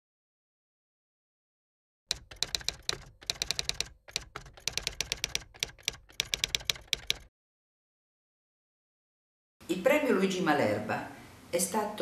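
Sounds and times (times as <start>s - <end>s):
typewriter keys striking: 2.1s - 7.3s.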